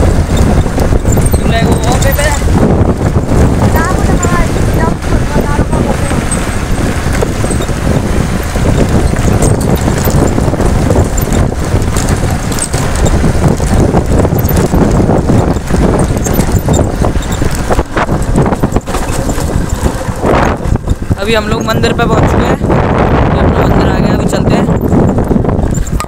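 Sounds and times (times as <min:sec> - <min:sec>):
motorcycle engine and tyres rumbling: 0:00.0 - 0:26.0
wind buffeting microphone: 0:00.0 - 0:26.0.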